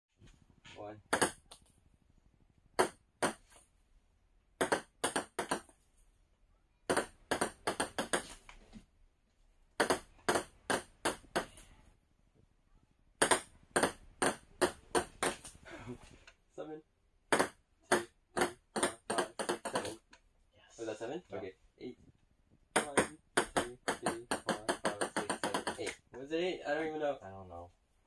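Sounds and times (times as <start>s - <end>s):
ping-pong ball bouncing on table: 1.1s - 1.7s, 2.8s - 3.5s, 4.6s - 5.7s, 6.9s - 8.4s, 9.8s - 11.6s, 13.2s - 15.5s, 17.3s - 20.0s, 22.7s - 26.0s.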